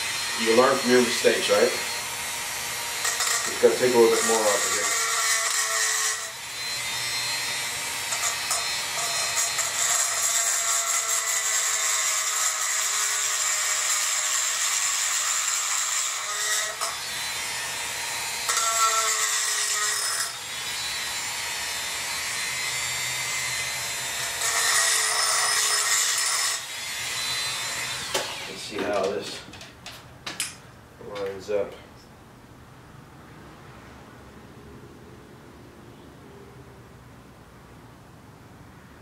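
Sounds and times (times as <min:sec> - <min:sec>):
rotary tool grinding metal: 0:00.0 - 0:29.4.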